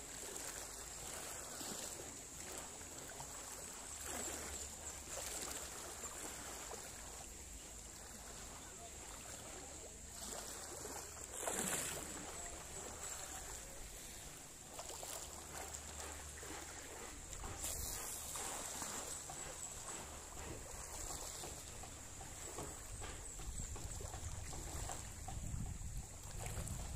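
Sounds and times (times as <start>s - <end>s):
small waves lapping: 0.0s - 26.9s
wind on microphone: 23.0s - 26.9s.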